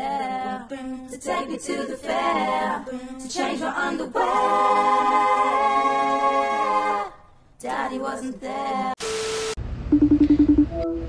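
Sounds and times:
woman singing a cappella: 0.0s - 5.9s, 6.5s - 9.0s.

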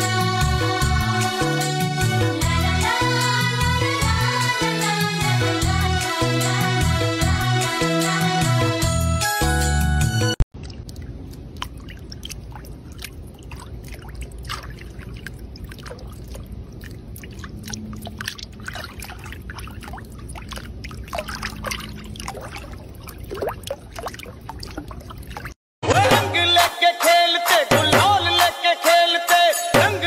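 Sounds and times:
water trickling and splashing: 10.5s - 25.6s
water drips: 10.6s - 25.6s.

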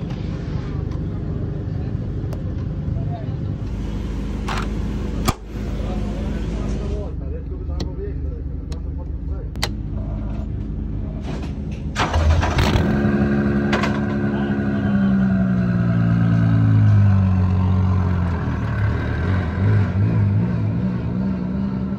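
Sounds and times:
truck engine starting and idling: 3.6s - 19.7s.

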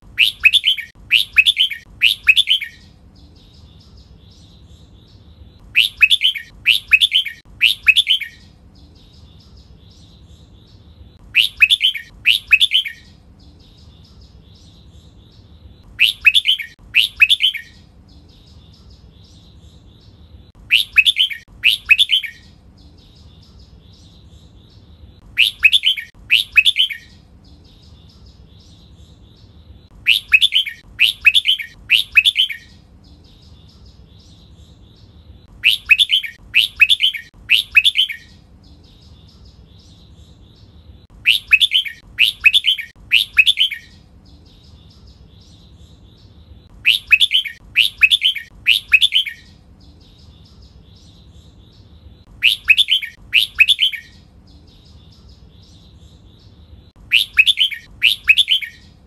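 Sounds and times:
bird singing rich notes: 0.0s - 59.0s
soft bird chatter: 0.0s - 59.0s.

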